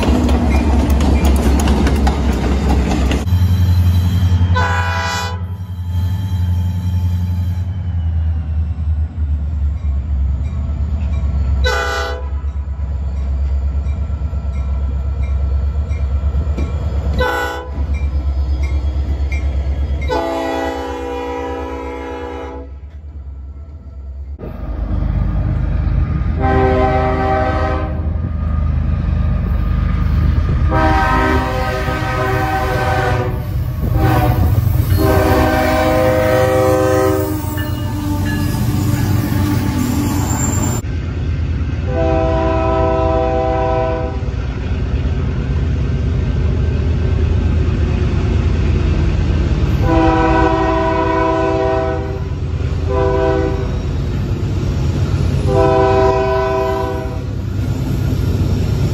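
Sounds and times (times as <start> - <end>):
locomotive air horn blasts: 3.3 - 7.7, 11.6 - 12.4, 17.2 - 17.9, 20.1 - 22.8, 26.4 - 28.2, 30.6 - 39.6, 41.9 - 44.3, 49.8 - 53.7, 55.4 - 57.4.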